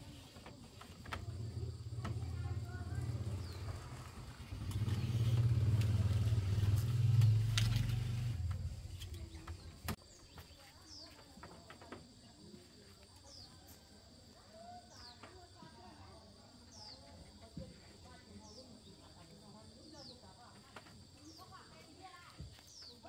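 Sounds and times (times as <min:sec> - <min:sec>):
vehicle engine passing by: 0:01.3 - 0:09.9.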